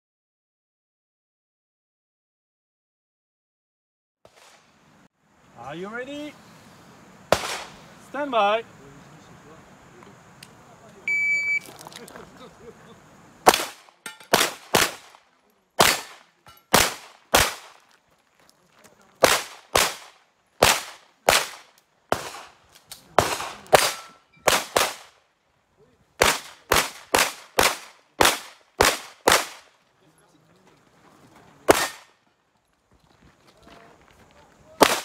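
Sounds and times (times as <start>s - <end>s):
handgun shots: 7.3s - 7.8s, 13.4s - 15.2s, 15.8s - 17.8s, 19.2s - 25.2s, 26.2s - 29.7s, 31.7s - 32.1s, 34.8s - 35.0s.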